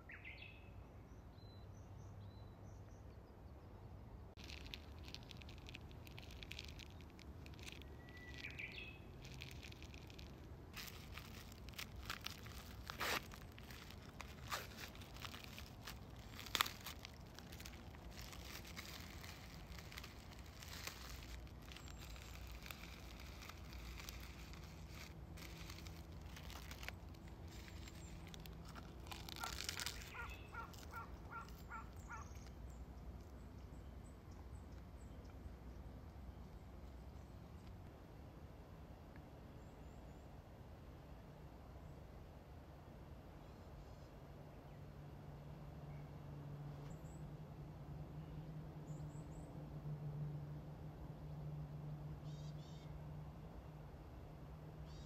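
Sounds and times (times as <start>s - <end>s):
plastic wrapper crinkling and tearing: 4.4s - 32.7s
birds chirping: 6.1s - 33.8s.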